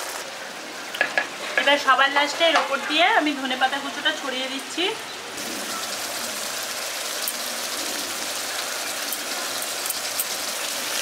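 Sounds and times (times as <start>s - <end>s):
gravy simmering and sizzling: 0.0s - 11.0s.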